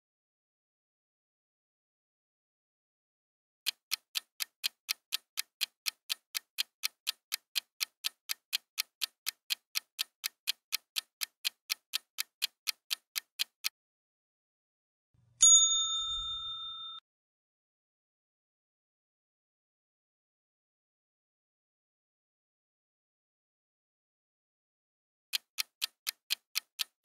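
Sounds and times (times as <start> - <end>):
clock ticking: 3.7 - 13.7, 25.3 - 27.0
bright ding: 15.4 - 17.0.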